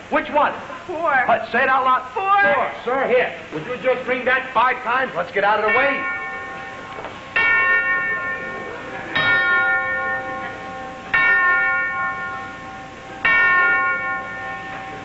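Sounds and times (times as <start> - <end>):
bell ringing: 5.6 - 15.0.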